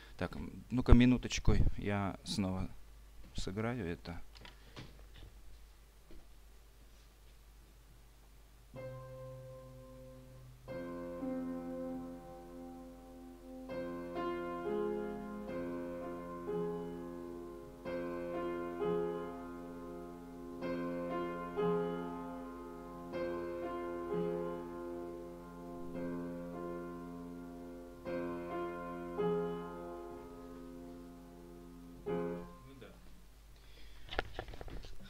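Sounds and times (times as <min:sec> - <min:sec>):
slow piano phrase: 0:08.7 - 0:33.0.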